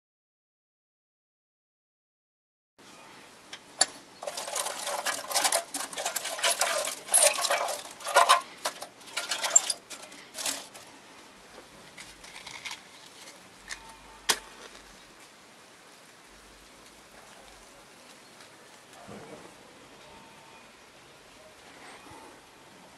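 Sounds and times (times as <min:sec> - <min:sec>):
pine cones clattering on metal: 0:03.8 - 0:10.9, 0:11.8 - 0:15.1.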